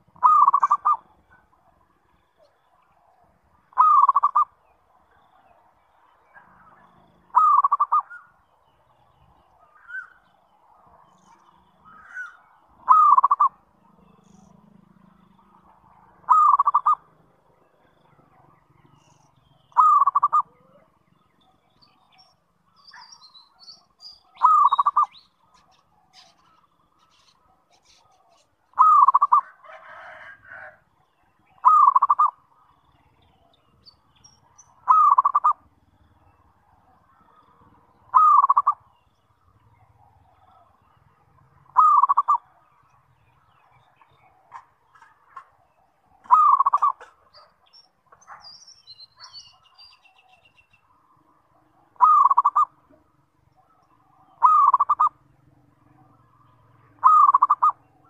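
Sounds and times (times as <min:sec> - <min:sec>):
dove cooing: 0:00.0 - 0:01.8, 0:03.7 - 0:04.6, 0:06.5 - 0:08.3, 0:11.9 - 0:13.6, 0:15.6 - 0:17.2, 0:19.7 - 0:21.0, 0:24.3 - 0:26.6, 0:27.7 - 0:30.8, 0:31.5 - 0:32.4, 0:34.8 - 0:35.7, 0:37.1 - 0:38.9, 0:41.6 - 0:42.6, 0:46.1 - 0:47.5, 0:51.8 - 0:55.2, 0:57.0 - 0:57.9
faint bird chirps: 0:00.0 - 0:58.0.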